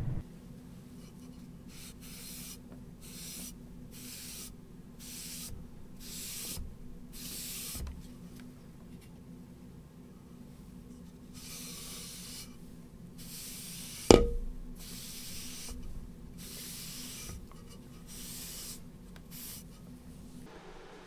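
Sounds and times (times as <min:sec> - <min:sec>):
rag swishing on wood: 0:13.2 - 0:20.5
sharp knock: 0:14.1 - 0:14.6.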